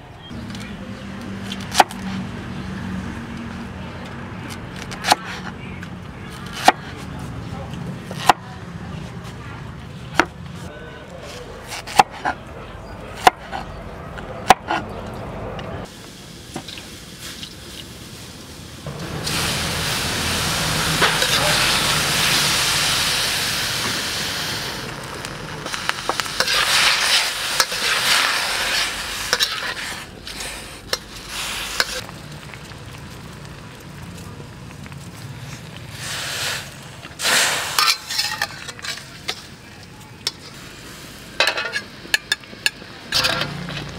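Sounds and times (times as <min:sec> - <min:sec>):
greens sizzling in hot wok: 0:15.8 - 0:43.9.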